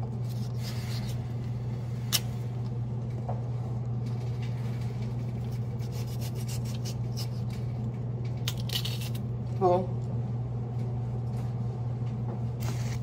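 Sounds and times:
steady low hum: 0.0 - 13.0
knife cutting potato: 5.5 - 7.5, 8.4 - 9.2.

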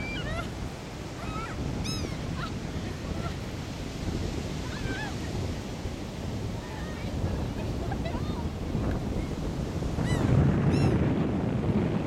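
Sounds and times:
seagulls calling: 0.0 - 3.4, 10.0 - 11.0
surf rushing: 0.0 - 12.0
wind: 0.0 - 12.0.

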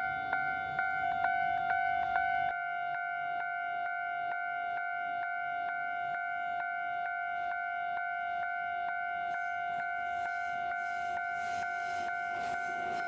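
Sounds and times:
level crossing warning bell: 0.0 - 5.0, 5.8 - 13.0
hiss of approaching train: 9.3 - 13.0.

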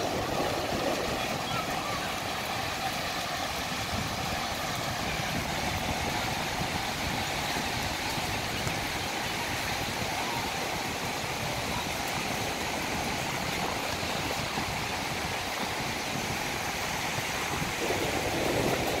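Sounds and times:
waves breaking on beach: 0.0 - 19.0.

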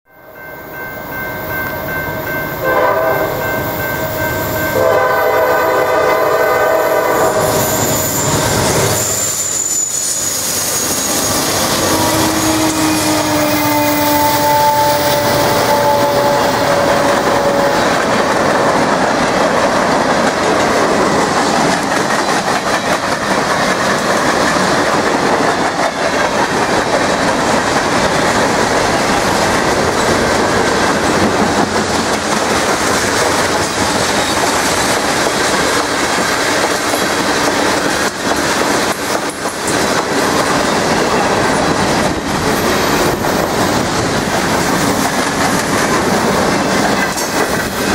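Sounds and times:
train horn chord: 2.5 - 8.7, 11.7 - 18.2
freight train wheels clattering: 3.3 - 47.9.

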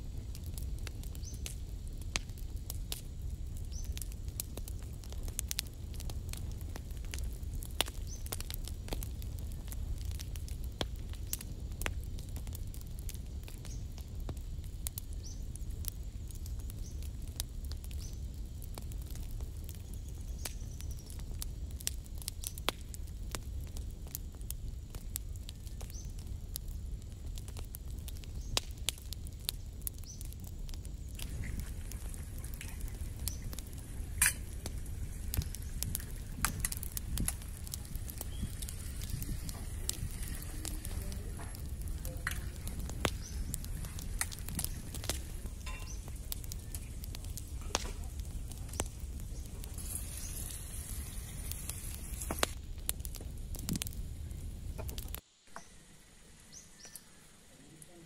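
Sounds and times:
wood fire crackling: 0.0 - 58.0
tomatoes sizzling in a pan: 28.2 - 58.0
sharp pops: 31.1 - 55.7
egg cracking: 31.2 - 53.1.

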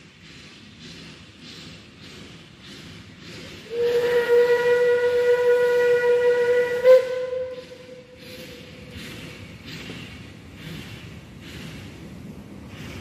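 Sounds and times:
steam locomotive chuffing: 0.0 - 13.0
long steam whistle blast: 3.6 - 8.2.

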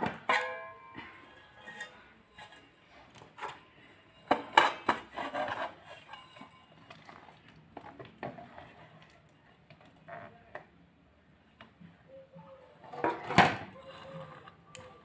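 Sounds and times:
steel bowls clanking and knocking: 0.0 - 3.5.

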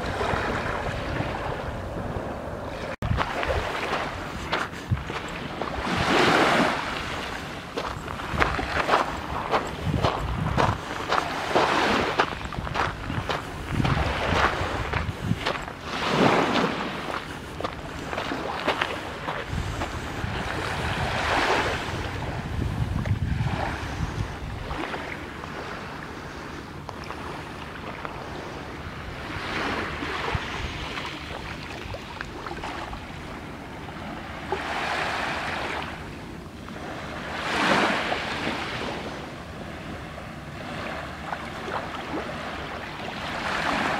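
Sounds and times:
wind rumble on microphone: 0.0 - 43.9
waves washing on pebble shore: 3.1 - 24.0.

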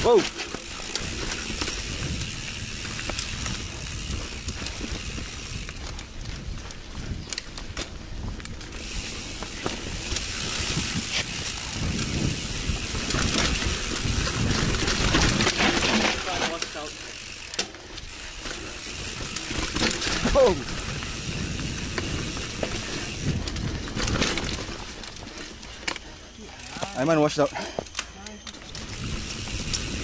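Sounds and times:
tyre and wind rumble: 0.0 - 25.6, 28.7 - 30.0
bike rattling over rocks: 0.0 - 30.0.

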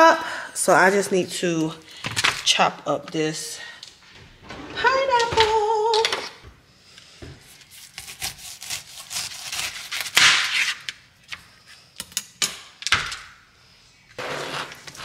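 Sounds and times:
knife sawing through pineapple rind: 7.7 - 10.8.

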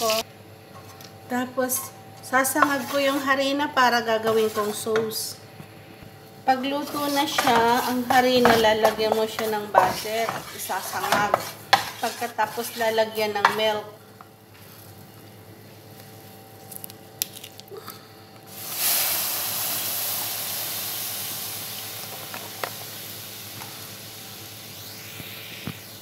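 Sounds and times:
milk sizzling in hot pan: 6.8 - 13.6, 18.5 - 25.8.

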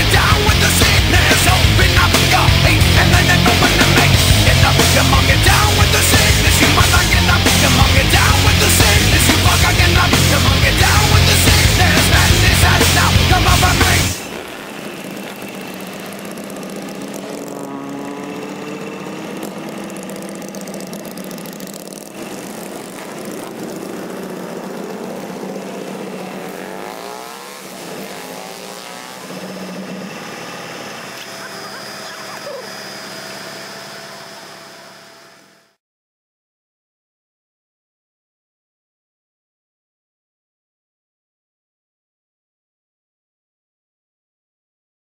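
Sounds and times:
motorcycle engine revving: 0.0 - 35.8.

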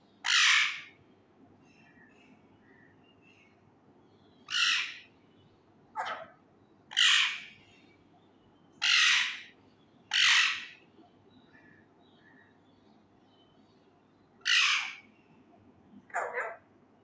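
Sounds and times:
parakeet screeching calls: 0.2 - 0.9, 4.5 - 5.0, 6.9 - 7.5, 8.8 - 9.5, 10.1 - 10.8, 14.4 - 15.0.

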